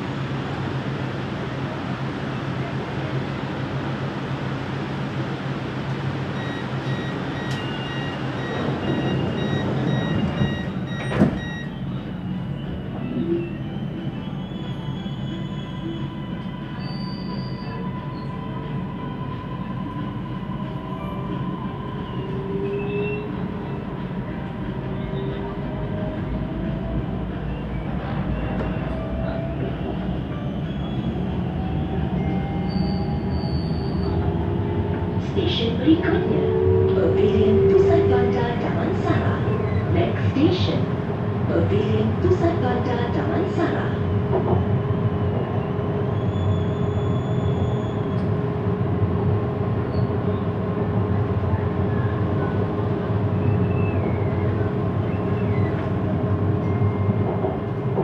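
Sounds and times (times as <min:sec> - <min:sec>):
train low hum: 0:00.0 - 0:58.0
train door warning beeps: 0:06.1 - 0:18.4, 0:56.5 - 0:58.0.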